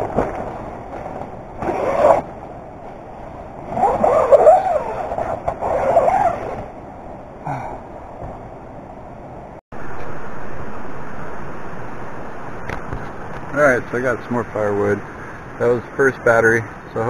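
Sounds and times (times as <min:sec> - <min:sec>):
tent fabric rustling: 0:00.0 - 0:06.7.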